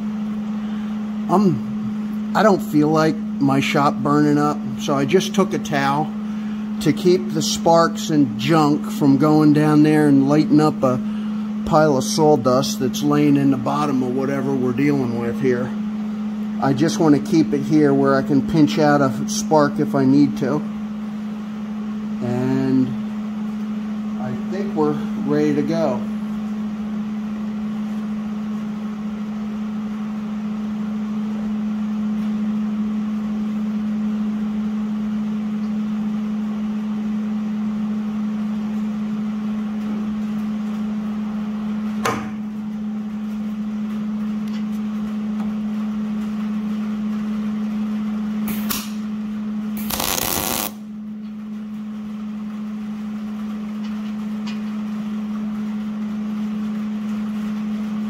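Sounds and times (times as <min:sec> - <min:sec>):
sharp click: 0:48.5 - 0:49.0
welding arc crackling: 0:49.8 - 0:50.8
welder humming: 0:49.8 - 0:50.9.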